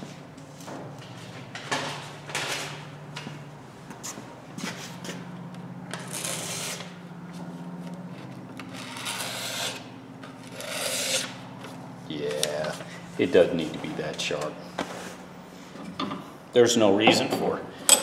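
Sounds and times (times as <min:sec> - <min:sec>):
steady low hum: 0:00.0 - 0:18.0
scraping along steel edge: 0:05.9 - 0:07.0, 0:08.6 - 0:11.5.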